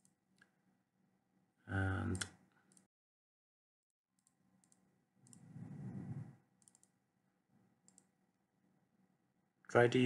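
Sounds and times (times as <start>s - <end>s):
computer mouse clicking: 4.2s - 5.6s, 6.6s - 7.0s, 7.8s - 8.1s
soft low rustle: 5.4s - 6.4s.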